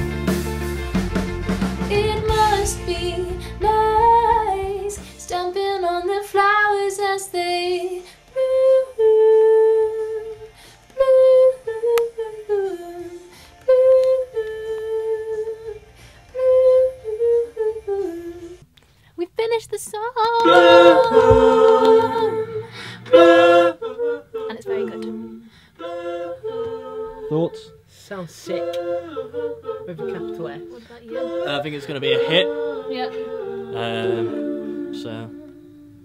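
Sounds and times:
band backing music: 0.0s - 6.1s, 20.4s - 23.7s
woman singing: 1.9s - 18.6s, 19.2s - 23.2s, 24.4s - 25.5s, 28.1s - 31.4s, 32.6s - 33.4s.

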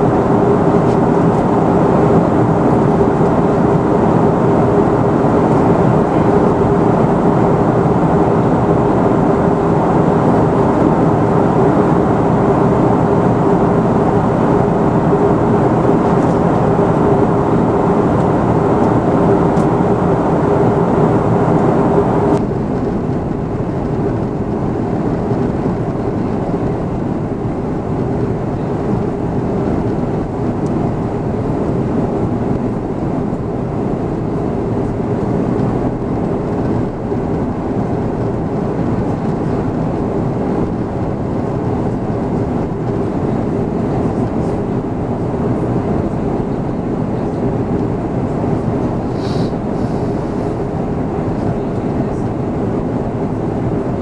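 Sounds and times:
jet engines droning: 0.0s - 54.0s
steady hum: 0.0s - 54.0s
air rushing past fuselage: 48.7s - 51.4s.

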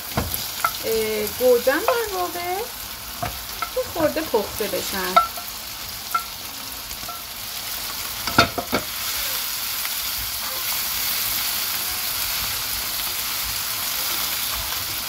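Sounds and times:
meat sizzling in a frying pan: 0.0s - 15.0s
cookware knocks: 8.3s - 8.9s.

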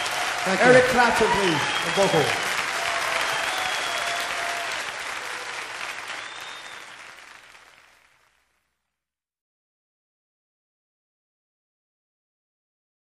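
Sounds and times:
audience applause and cheering: 0.0s - 8.4s
whistles from audience: 0.6s - 7.2s.

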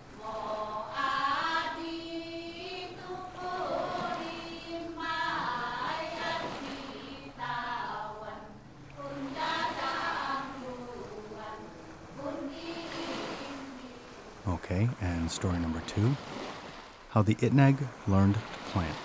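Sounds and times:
group chanting: 0.0s - 14.1s.

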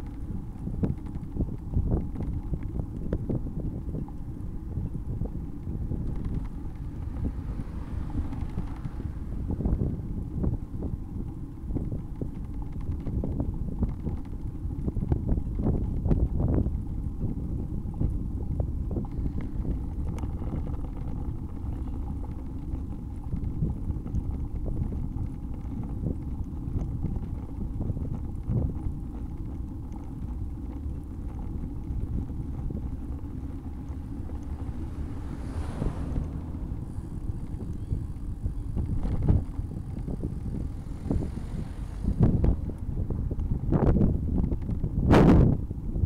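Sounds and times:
wind rumbling on microphone: 0.0s - 46.0s.

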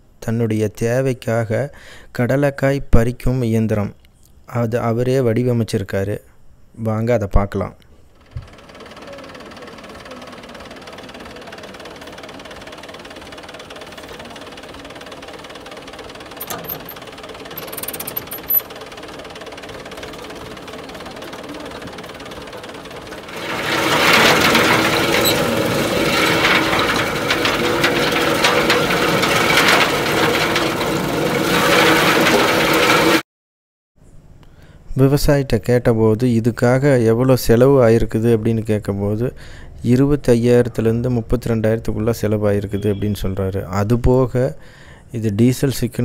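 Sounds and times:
diesel engine running: 8.2s - 33.2s
machine rattling: 8.2s - 33.2s.

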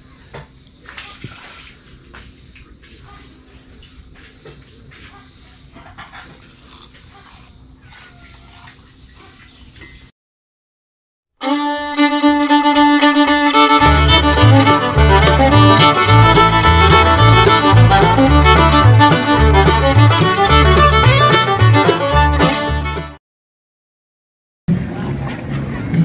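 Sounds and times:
crickets chirring: 0.0s - 10.1s, 24.7s - 26.0s
instrumental music: 11.4s - 23.2s.

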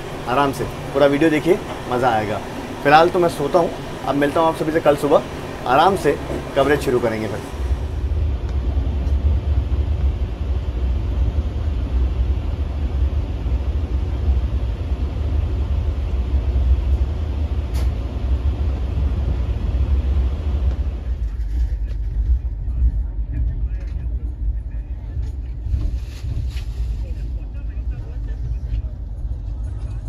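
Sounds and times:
train coach rumbling: 0.0s - 30.0s.

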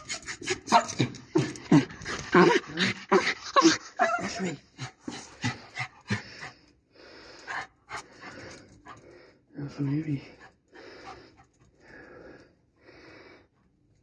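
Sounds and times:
small dog whining and yelping: 2.4s - 4.6s.

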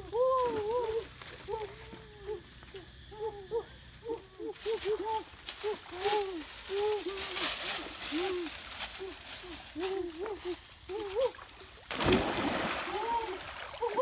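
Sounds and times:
rustle of dry leaves underfoot: 4.0s - 14.0s.

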